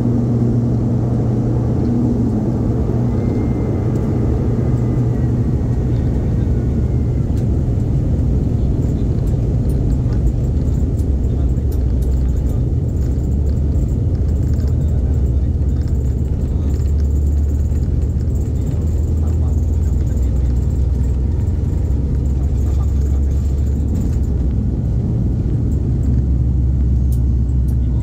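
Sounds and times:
turboprop engines droning in cabin: 0:00.0 - 0:28.0.

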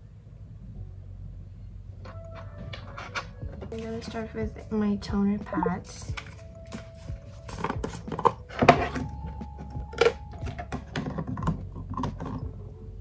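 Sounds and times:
skincare products clicking and knocking: 0:07.5 - 0:12.5.

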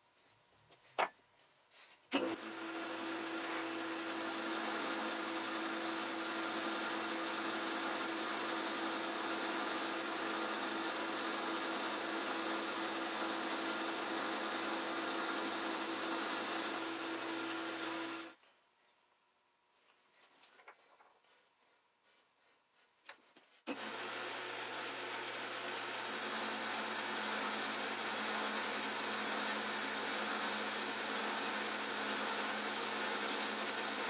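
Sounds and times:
metal lathe running: 0:02.2 - 0:18.4, 0:23.7 - 0:34.0.

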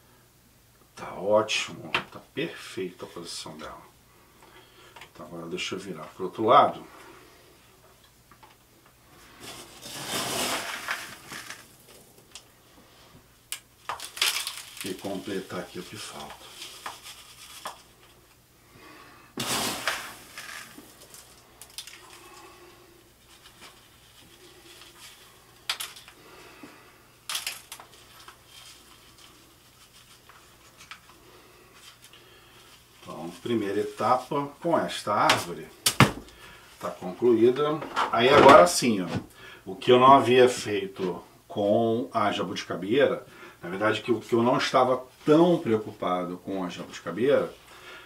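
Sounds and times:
gritty grains scraping and crunching: 0:09.2 - 0:12.2, 0:13.8 - 0:18.3, 0:19.4 - 0:26.3, 0:27.2 - 0:35.6
gritty soil scooped and poured: 0:09.3 - 0:11.9, 0:14.4 - 0:17.8, 0:19.4 - 0:21.4
grit spilling: 0:09.4 - 0:12.1, 0:13.8 - 0:17.9, 0:19.4 - 0:22.4.

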